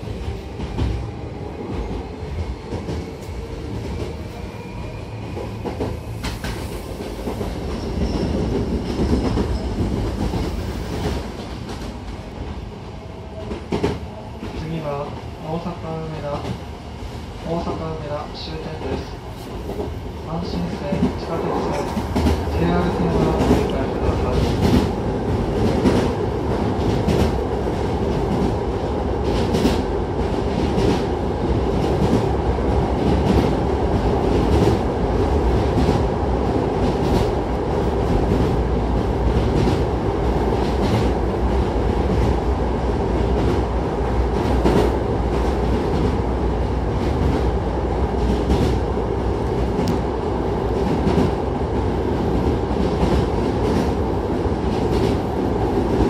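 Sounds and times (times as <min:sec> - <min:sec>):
train wheels rumbling on track: 0:00.0 - 0:56.0.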